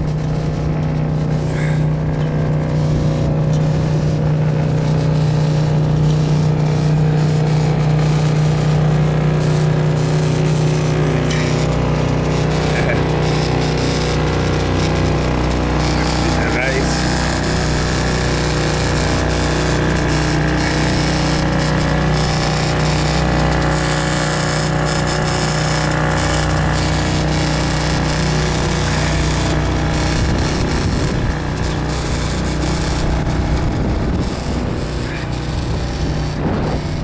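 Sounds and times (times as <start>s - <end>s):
outboard motor running: 0.0s - 37.0s
wind noise on microphone: 28.4s - 37.0s.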